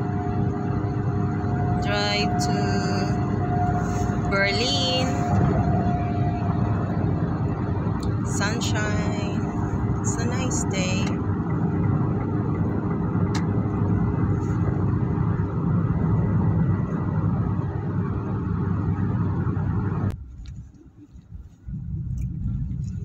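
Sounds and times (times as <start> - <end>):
car road and engine noise: 0.0 - 23.0
low car interior hum: 0.0 - 23.0.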